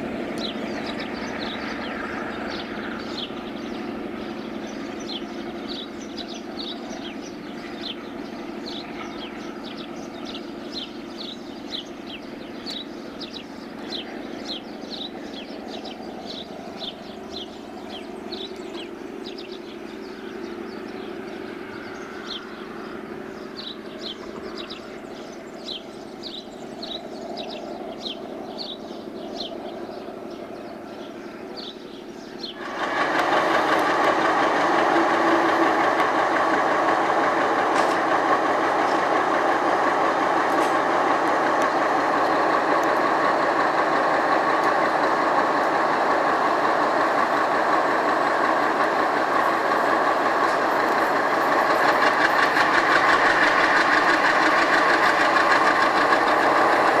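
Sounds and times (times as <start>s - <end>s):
bird chirping: 0.0s - 32.8s
distant locomotive engine drone: 0.0s - 57.0s.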